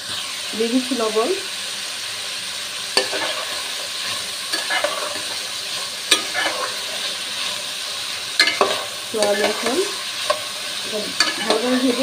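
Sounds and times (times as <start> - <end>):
frying oil sizzling: 0.0 - 12.0
spatula scraping and knocking pan: 2.9 - 12.0.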